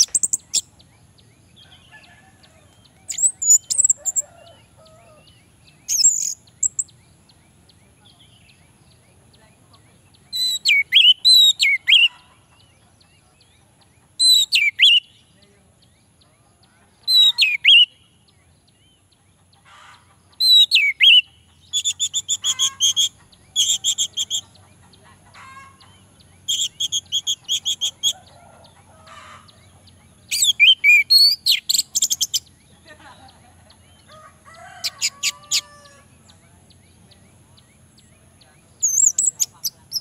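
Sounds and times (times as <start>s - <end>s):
thrush singing whistled notes: 3.0s - 7.5s, 10.3s - 12.1s, 14.2s - 15.3s, 20.4s - 24.5s, 26.4s - 28.4s, 30.3s - 32.8s, 38.8s - 40.0s.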